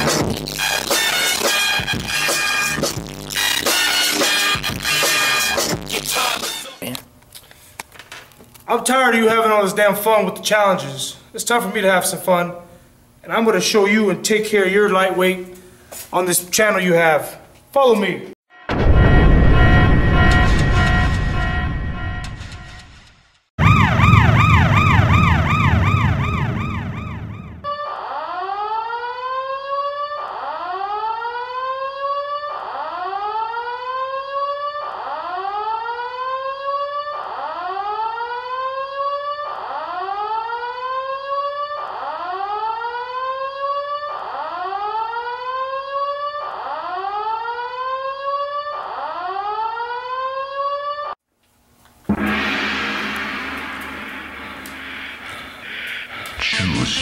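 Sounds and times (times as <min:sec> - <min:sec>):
siren-like alarm: 0:00.6 - 0:05.6, 0:18.5 - 0:51.2, 0:52.1 - 0:57.0.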